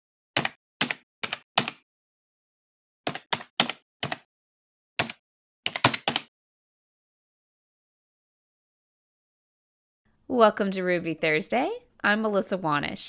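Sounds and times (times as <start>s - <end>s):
keyboard keystrokes clicking: 0.4s - 1.8s, 3.1s - 4.3s, 5.0s - 6.3s.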